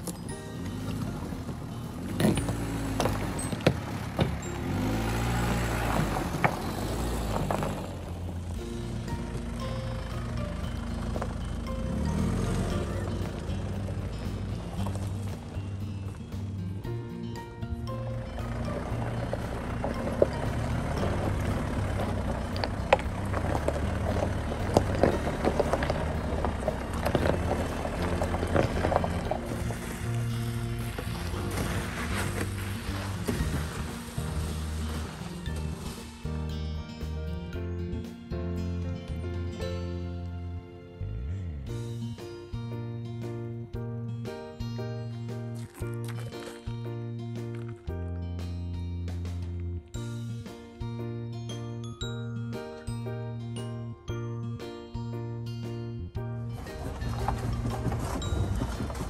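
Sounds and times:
stones crunching under tyres: 0:00.0 - 0:17.0, 0:18.0 - 0:36.9, 0:45.4 - 0:48.0, 0:56.5 - 0:59.0
diesel engine pulling uphill: 0:00.0 - 0:59.0
stones cracking: 0:18.8 - 0:36.2, 0:45.6 - 0:46.8.

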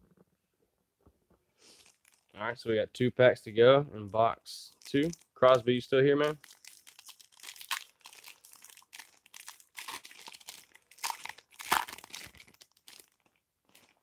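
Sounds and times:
foil wrapper crinkling: 0:01.7 - 0:02.4, 0:04.8 - 0:05.6, 0:06.2 - 0:14.0.

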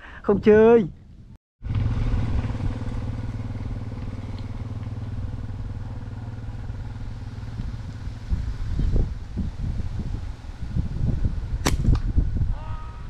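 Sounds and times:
motorcycle engine running: 0:01.6 - 0:11.6.

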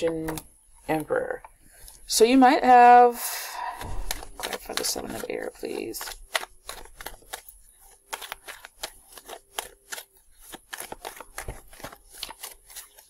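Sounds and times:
cards being shuffled: 0:03.8 - 0:13.0.

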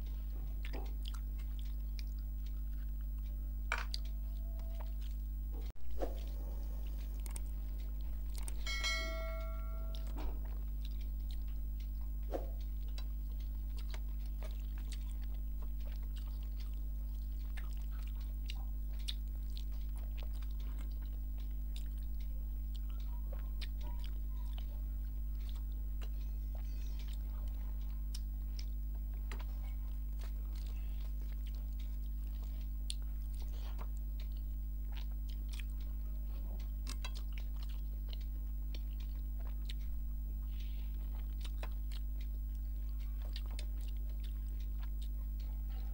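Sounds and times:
chewing and biting food: 0:00.0 - 0:08.8, 0:09.4 - 0:45.9
low electrical hum: 0:00.0 - 0:45.9
short multi-tone chime: 0:08.7 - 0:10.2.

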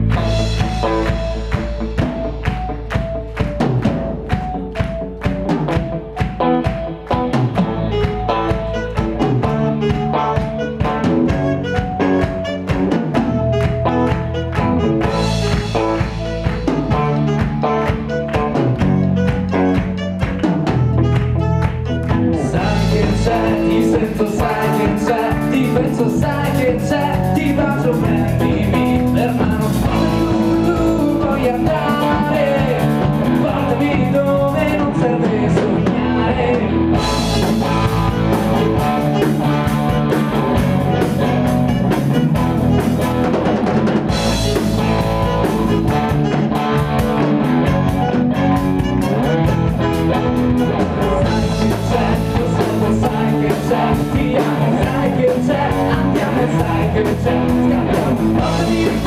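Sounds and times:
bass guitar: 0:00.0 - 0:59.0
drum kit: 0:00.0 - 0:59.0
electric guitar: 0:00.0 - 0:59.0
person singing: 0:22.1 - 0:59.0.

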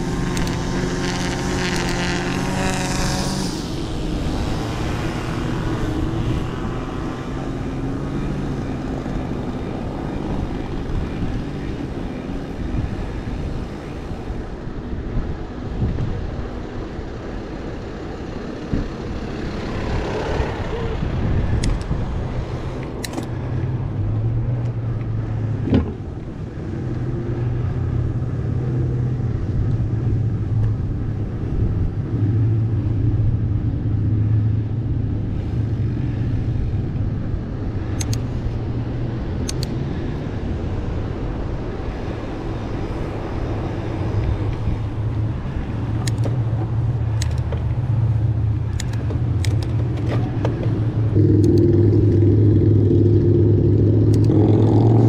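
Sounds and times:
mountain bike rolling rumble: 0:03.8 - 0:55.0
sharp clicks: 0:21.6 - 0:22.0, 0:37.9 - 0:38.3, 0:39.4 - 0:39.8, 0:46.0 - 0:46.4, 0:47.1 - 0:47.8, 0:48.7 - 0:50.7, 0:54.0 - 0:54.4.

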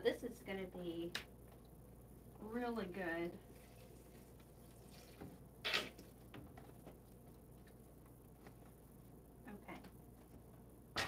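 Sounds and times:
faint ticks and clicks: 0:01.1 - 0:02.4.

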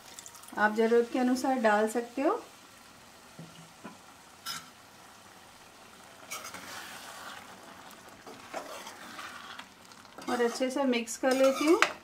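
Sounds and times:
spoon stirring curry in pan: 0:06.2 - 0:12.0.

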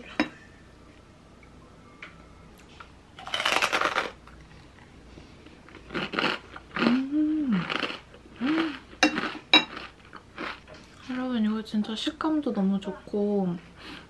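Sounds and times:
crunchy snack chewing: 0:03.2 - 0:04.4, 0:05.7 - 0:07.0, 0:07.6 - 0:10.7
person humming mm: 0:06.8 - 0:07.7, 0:08.4 - 0:08.9.

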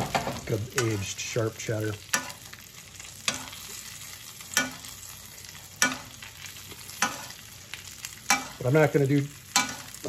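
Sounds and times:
patties sizzling in a skillet: 0:00.0 - 0:10.0
metal spoon clinking on pan: 0:02.1 - 0:02.4, 0:03.3 - 0:03.6, 0:04.5 - 0:04.9, 0:05.8 - 0:06.2, 0:07.0 - 0:07.3, 0:08.2 - 0:08.6, 0:09.5 - 0:10.0.

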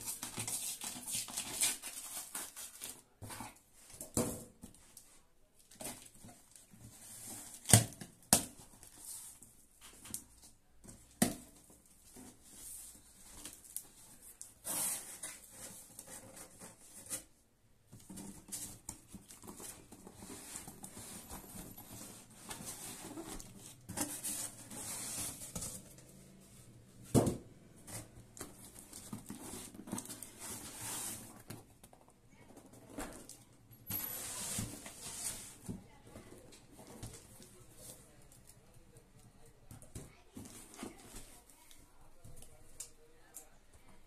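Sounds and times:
cardboard scraping and rustling: 0:18.0 - 0:31.8, 0:34.1 - 0:35.8.

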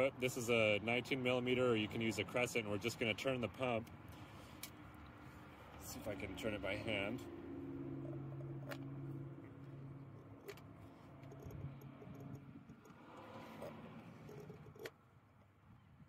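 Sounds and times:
steady low hum: 0:06.8 - 0:14.9
metallic clicks of pump: 0:10.1 - 0:15.0.

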